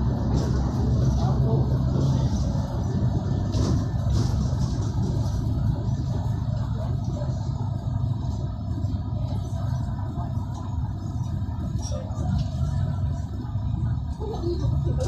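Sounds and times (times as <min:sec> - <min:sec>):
bus engine rumble: 0:00.0 - 0:15.0
road noise: 0:00.0 - 0:15.0.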